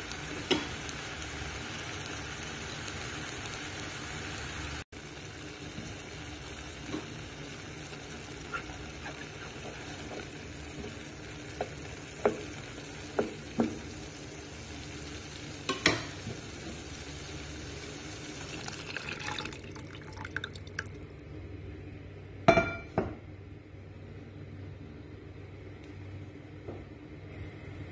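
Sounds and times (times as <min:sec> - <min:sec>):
meat and onions sizzling: 0:00.0 - 0:19.6.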